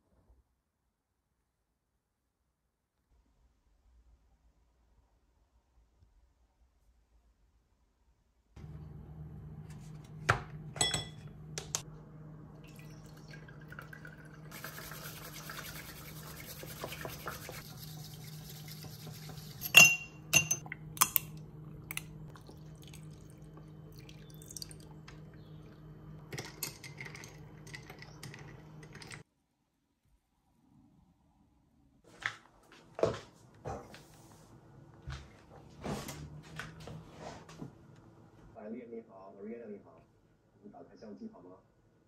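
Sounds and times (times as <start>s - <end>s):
dishes and glass clinking: 10.7s - 11.3s, 19.6s - 21.2s
water running: 12.4s - 29.2s.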